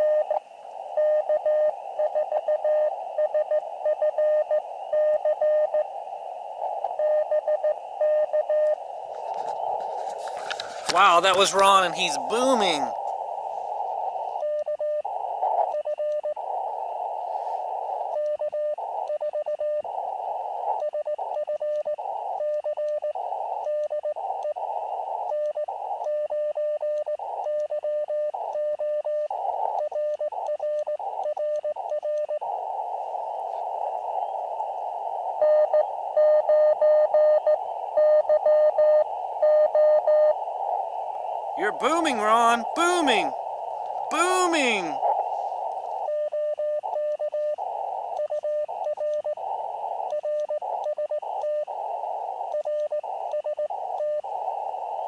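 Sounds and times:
radio band hiss: 5.9 - 7.0, 8.7 - 15.7, 16.3 - 18.2, 18.8 - 19.0, 23.2 - 23.6, 24.2 - 26.0, 31.8 - 36.1, 40.4 - 55.0
morse code tone: 41.6 - 43.3.

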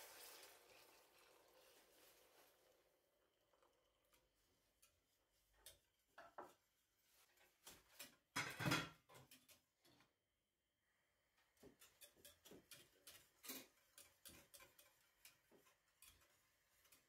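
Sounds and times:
whisk scraping a saucepan: 11.5 - 17.0.

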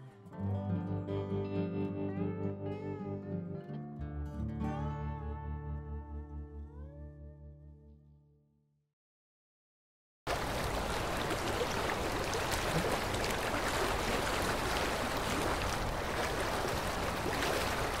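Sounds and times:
river rushing over rapids: 10.3 - 18.0.

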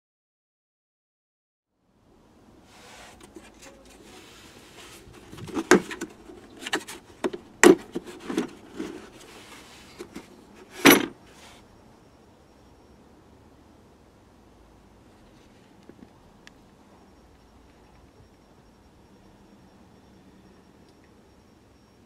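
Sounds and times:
rubbing and handling noise: 2.6 - 11.7.

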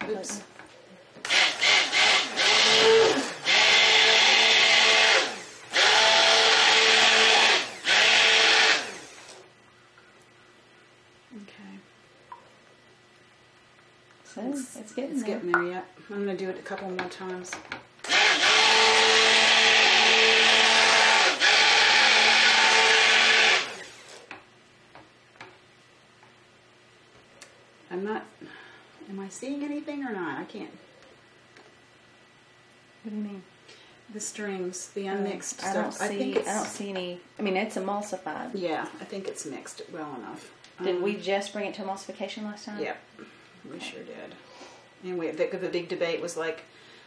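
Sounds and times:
stick blender running: 1.2 - 9.4, 18.0 - 24.3.

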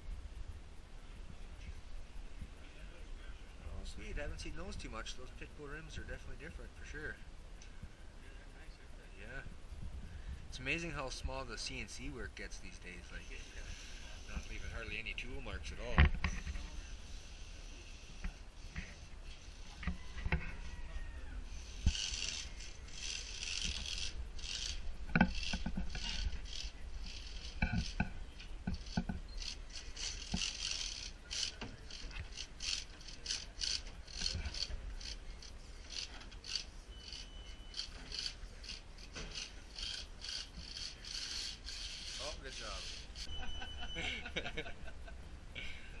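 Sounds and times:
electric motor whirring: 21.6 - 28.1, 28.7 - 43.3.

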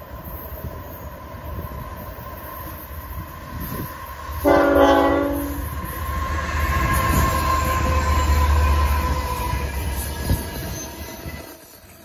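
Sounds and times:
diesel locomotive rumble: 0.0 - 12.0
locomotive air horn blast: 4.4 - 5.7.

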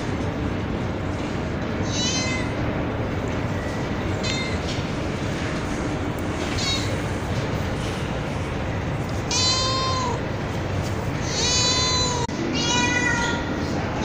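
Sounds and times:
steady background noise: 0.0 - 14.0
cat meowing: 1.8 - 2.6, 4.2 - 4.6, 6.5 - 7.1, 9.3 - 10.2, 11.2 - 13.6.

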